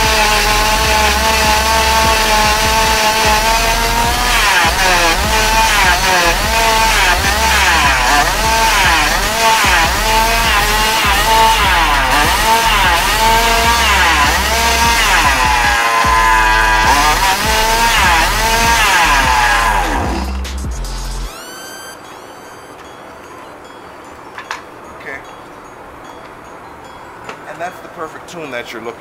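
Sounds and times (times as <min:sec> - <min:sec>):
two-stroke engine revving: 0:00.0 - 0:21.4.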